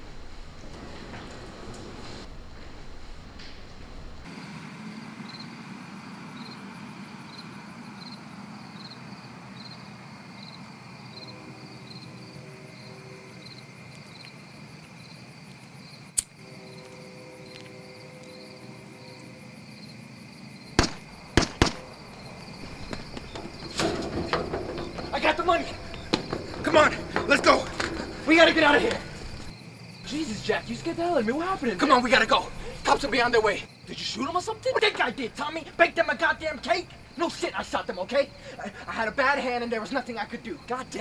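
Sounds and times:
crickets chirping: 0.0 - 41.0
sharp crack: 16.2 - 16.4, 20.8 - 29.5
gunshots: 20.8 - 22.1.

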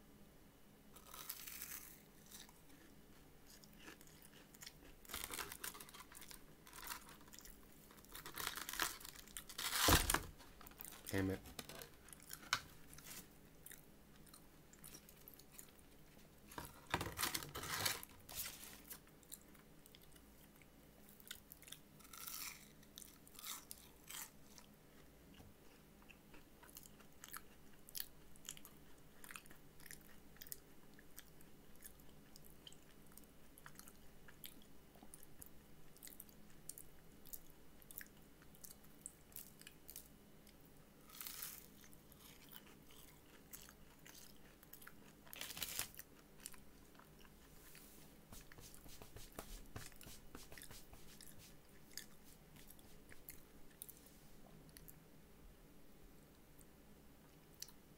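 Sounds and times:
crunching bites and chewing: 1.0 - 2.9, 3.5 - 9.9, 21.2 - 30.6, 41.0 - 47.4.

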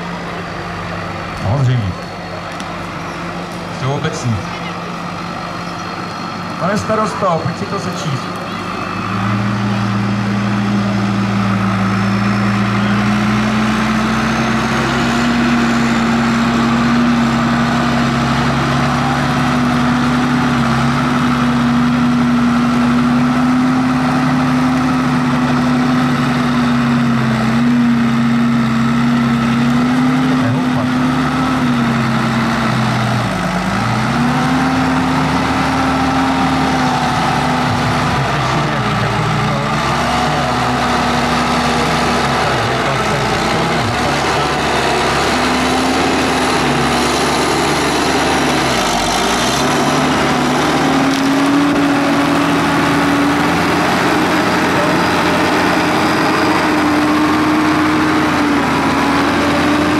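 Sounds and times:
tractor engine running: 0.0 - 59.9.

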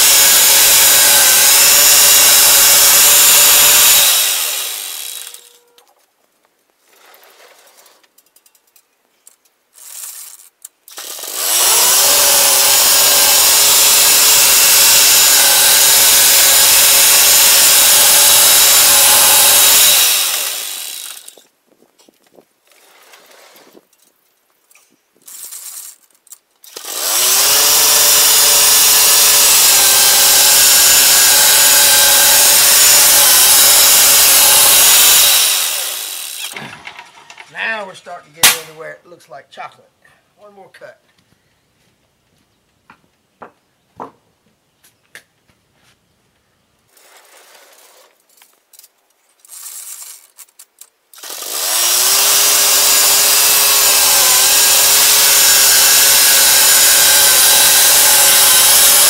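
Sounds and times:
sawmill blade cutting log: 0.0 - 5.6, 10.9 - 21.4, 26.7 - 36.8, 51.2 - 59.0.

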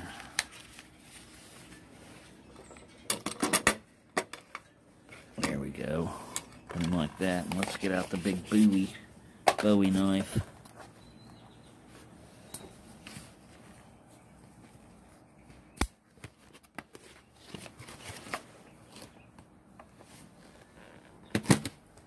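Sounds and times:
packaging rustling: 6.8 - 9.0.

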